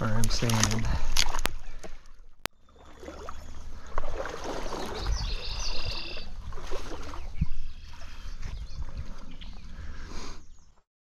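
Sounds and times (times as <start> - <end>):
stream water running: 0.0 - 10.4
wind on microphone: 4.6 - 10.7.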